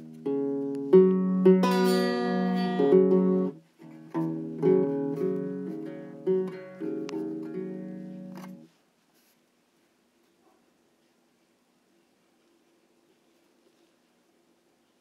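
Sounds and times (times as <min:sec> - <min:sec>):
plucked string instrument chords: 0:00.0 - 0:08.7.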